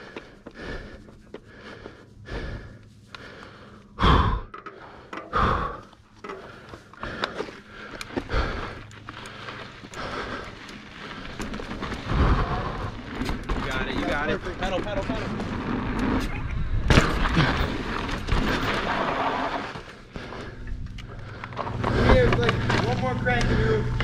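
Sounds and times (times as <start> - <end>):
heavy breathing and sighs: 0.0 - 13.2, 19.9 - 23.8.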